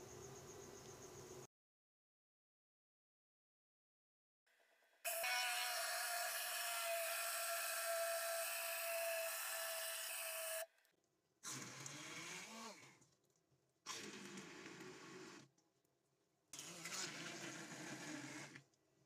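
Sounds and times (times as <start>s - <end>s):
hand blender whining: 5.1s - 10.6s.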